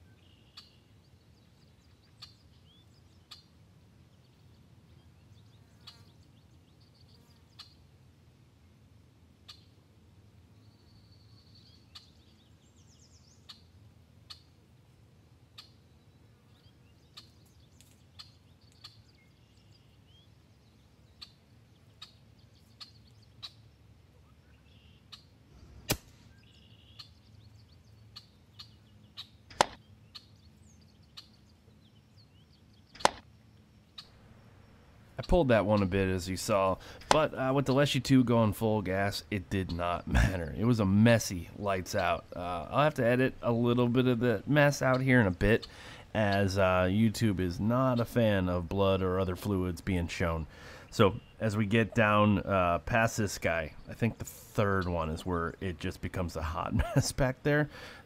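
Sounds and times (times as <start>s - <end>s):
faint bird chirps: 0.0s - 7.9s, 9.4s - 9.8s, 10.5s - 14.6s, 15.5s - 25.4s, 26.2s - 37.9s, 50.4s - 52.5s
air rifle shot cracks: 25.7s - 26.3s, 29.5s - 29.8s, 33.0s - 33.3s.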